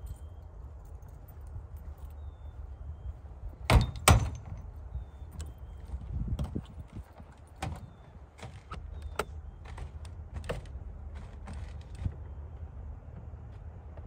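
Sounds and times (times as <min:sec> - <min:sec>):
footsteps on metal steps: 0:06.3 - 0:12.4.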